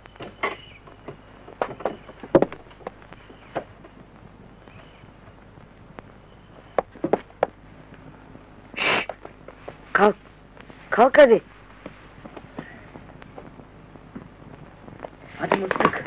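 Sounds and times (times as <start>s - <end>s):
footfalls on wooden boards: 0.2s - 3.9s, 6.8s - 7.6s.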